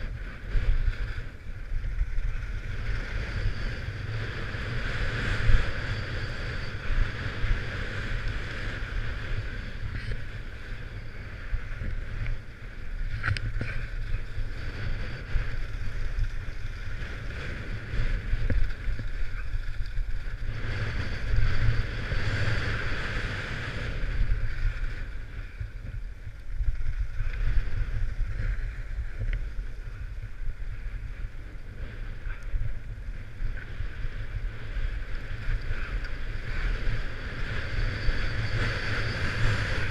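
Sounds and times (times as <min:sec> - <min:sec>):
wind rumbling on microphone: 0:00.0 - 0:39.9.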